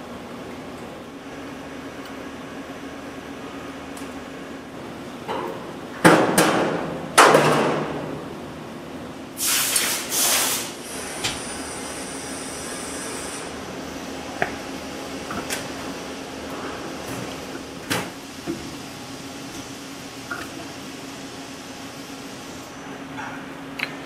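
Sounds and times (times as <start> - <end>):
low machine hum: 0.0 - 9.4, 10.8 - 24.0
short hisses: 9.4 - 10.8.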